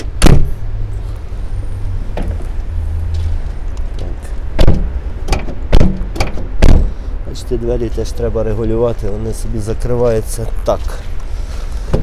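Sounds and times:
steady low rumble: 0:00.0 - 0:12.0
van door slam: 0:00.2 - 0:00.6, 0:04.6 - 0:07.0
van door knock: 0:04.6 - 0:06.9.

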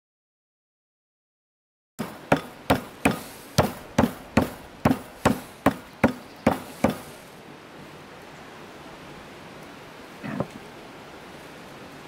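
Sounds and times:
knife chopping meat on wood: 0:02.0 - 0:07.0.

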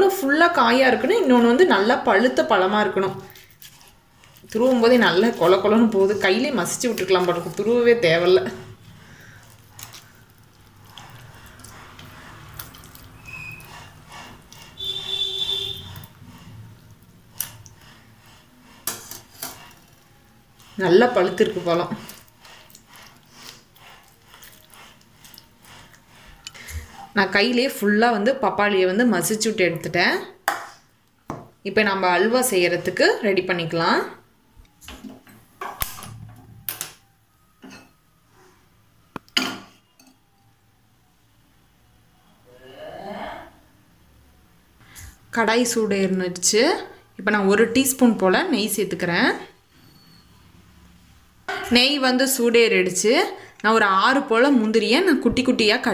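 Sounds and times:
fruit pulp squishing by hand: 0:01.4 - 0:27.8.

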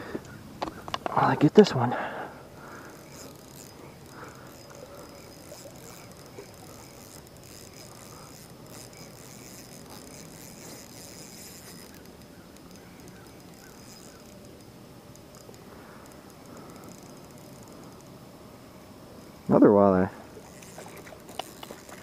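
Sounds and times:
insects chirring: 0:00.0 - 0:22.0
fishing reel clicks: 0:02.6 - 0:18.2, 0:20.4 - 0:22.0.

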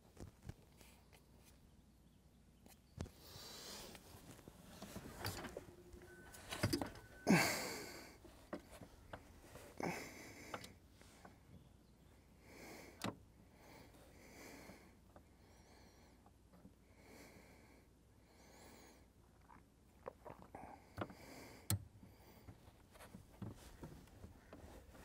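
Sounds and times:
person breathing heavily: 0:07.2 - 0:11.3, 0:12.4 - 0:16.2
person grunting: 0:07.3 - 0:07.9.

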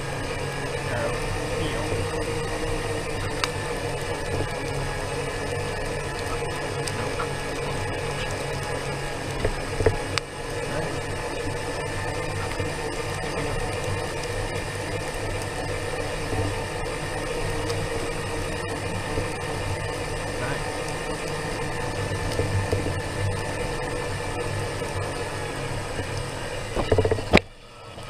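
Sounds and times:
electric scooter motor whining: 0:00.0 - 0:28.0.

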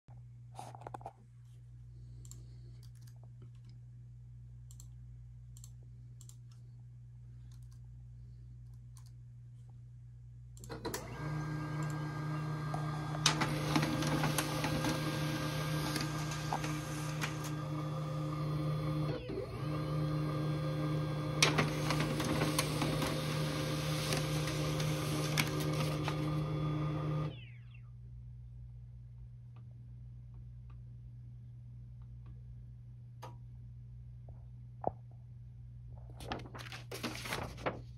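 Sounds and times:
low steady hum: 0:00.1 - 0:19.2, 0:20.1 - 0:37.9
laser printer printing: 0:10.7 - 0:27.6.

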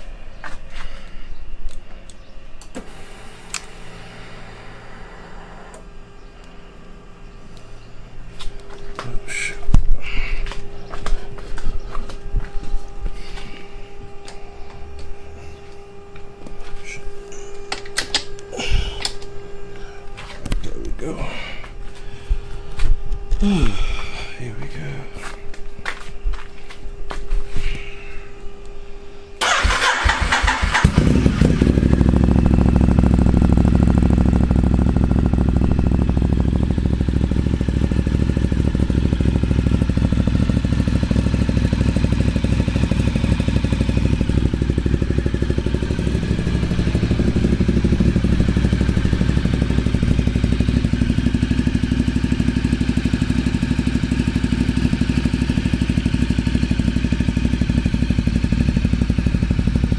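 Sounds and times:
steady hum: 0:00.0 - 0:59.9
starter motor cranking: 0:29.4 - 0:31.6
motorcycle engine idling: 0:29.4 - 0:59.9.

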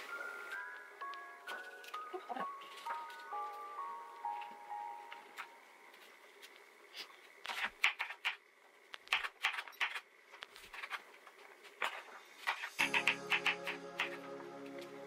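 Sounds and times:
background music: 0:00.0 - 0:05.8, 0:12.3 - 0:15.0
knife chopping on wooden board: 0:12.5 - 0:14.2.

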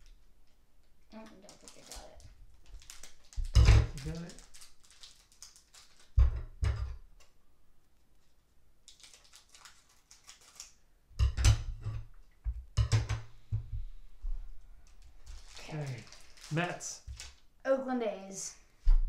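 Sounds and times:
card pack crinkling: 0:01.2 - 0:06.2, 0:08.8 - 0:10.8, 0:15.0 - 0:17.5.

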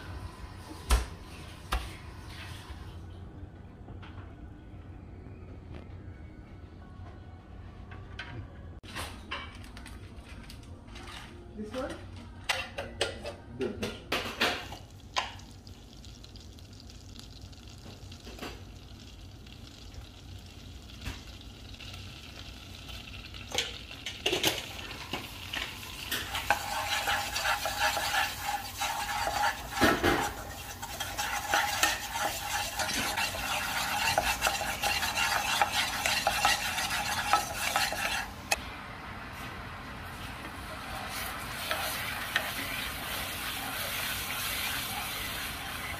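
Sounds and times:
butter and spices sizzling: 0:14.6 - 0:38.6, 0:40.0 - 0:45.9
wooden spatula scraping a pan: 0:26.1 - 0:38.5, 0:41.1 - 0:45.9.

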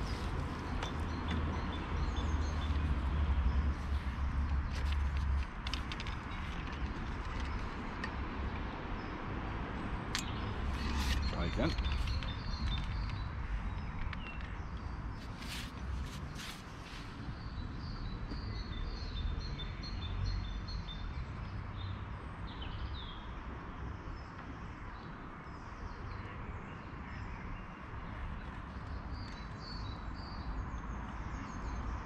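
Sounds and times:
birds chirping and trilling: 0:10.1 - 0:21.2.

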